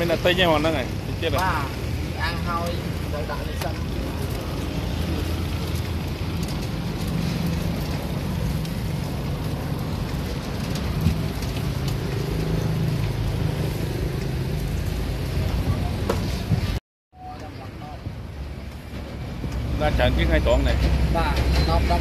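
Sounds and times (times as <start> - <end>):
meat sizzling on grill: 0.0 - 16.7.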